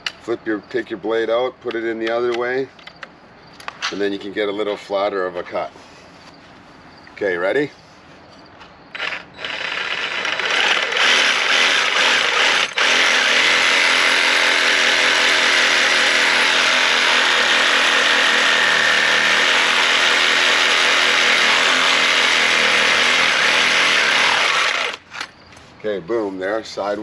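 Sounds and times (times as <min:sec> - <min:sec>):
reciprocating saw cutting: 0:09.0 - 0:25.2.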